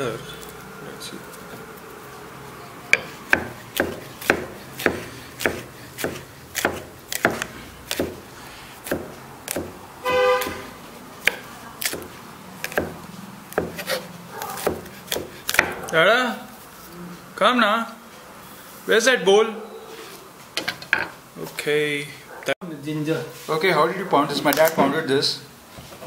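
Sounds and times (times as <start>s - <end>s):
pestle pounding in mortar: 2.9s - 8.2s, 8.8s - 9.8s, 10.4s - 15.9s
car horn toot: 10.0s - 10.8s.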